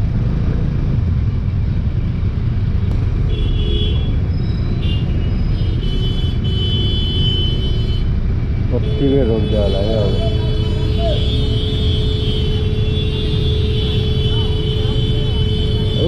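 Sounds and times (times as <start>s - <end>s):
vehicle horn: 3.3s - 4.2s, 4.8s - 8.1s, 8.8s - 16.0s
motorbike engines idling: 8.3s - 16.0s.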